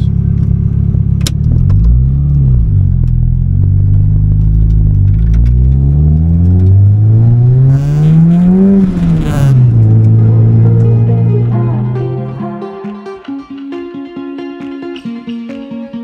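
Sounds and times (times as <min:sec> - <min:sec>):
car engine accelerating through gears: 0:00.0 - 0:12.5.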